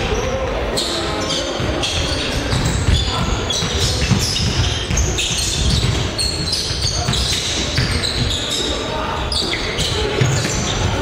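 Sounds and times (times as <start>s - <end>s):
shoes squeaking on gym floor: 0.0s - 11.0s
basketball bouncing: 1.6s - 8.4s, 9.5s - 11.0s.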